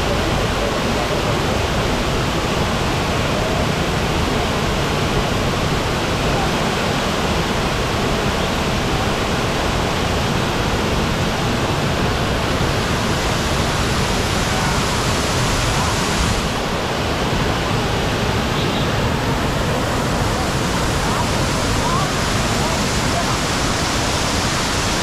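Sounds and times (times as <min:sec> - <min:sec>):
waterfall rushing: 0:00.0 - 0:25.0.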